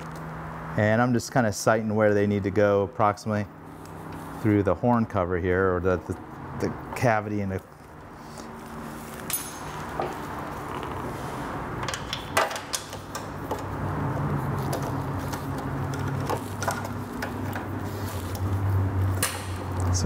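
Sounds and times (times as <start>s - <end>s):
light clicks and knocks of parts: 14.6s - 20.0s.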